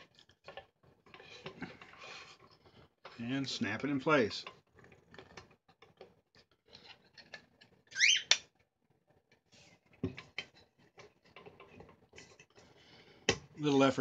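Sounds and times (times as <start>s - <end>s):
short rising squeak: 7.9s - 8.4s.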